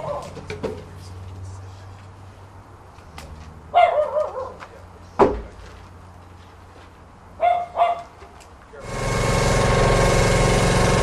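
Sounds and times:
dog barking: 0.0s - 0.3s, 3.7s - 4.6s, 7.4s - 8.1s
steady low hum: 8.8s - 11.0s.

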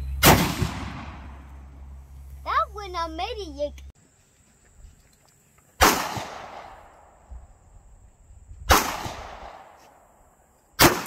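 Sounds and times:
pistol shots with echo: 0.2s - 1.3s, 5.8s - 6.8s, 8.7s - 9.8s, 10.8s - 11.0s.

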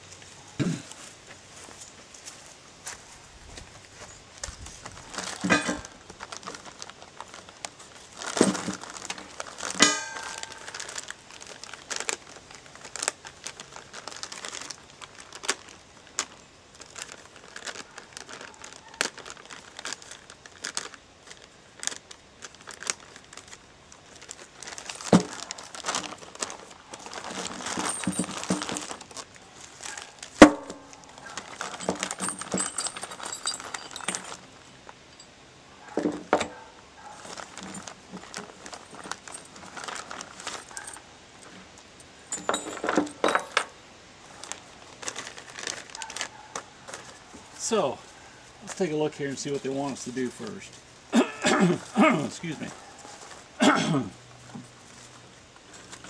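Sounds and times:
plastic bags crinkling: 4.0s - 35.2s, 35.9s - 43.6s, 44.2s - 56.0s
small parts clicking and knocking: 27.2s - 29.2s, 30.3s - 35.3s, 42.3s - 43.7s.

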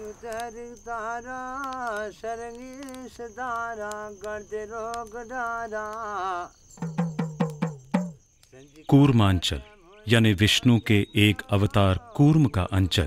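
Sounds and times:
person singing folk melody: 0.0s - 7.7s, 8.5s - 13.0s
insect trill: 0.0s - 13.0s
drum strokes: 6.8s - 8.2s.

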